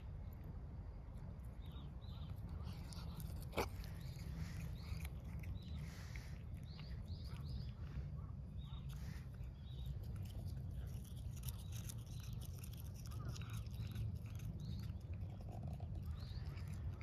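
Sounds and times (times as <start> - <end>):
cat chewing grass: 0.0 - 17.0.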